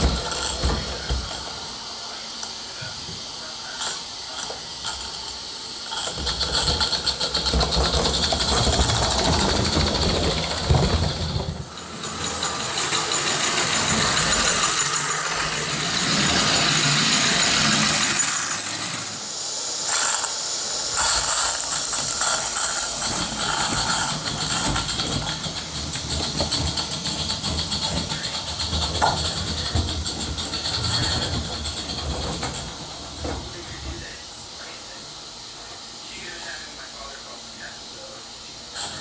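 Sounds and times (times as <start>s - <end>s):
steam hissing: 0.0s - 39.0s
wheels rumbling on metal track: 5.9s - 18.7s, 21.0s - 34.2s
steam locomotive beat: 6.5s - 21.2s.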